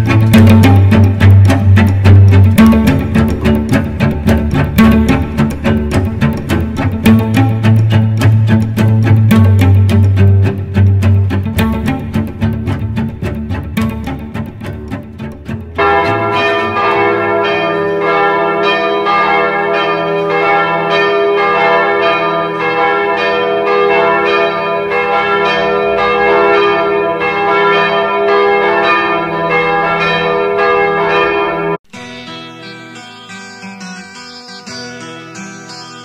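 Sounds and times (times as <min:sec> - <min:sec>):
church bells ringing: 0:15.8 - 0:31.8.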